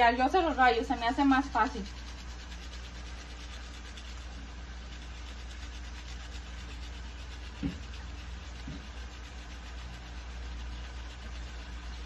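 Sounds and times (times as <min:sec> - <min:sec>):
steady low hum: 0:00.0 - 0:12.0
garlic scraping on hand grater: 0:00.4 - 0:12.0
dull knock: 0:07.6 - 0:07.8.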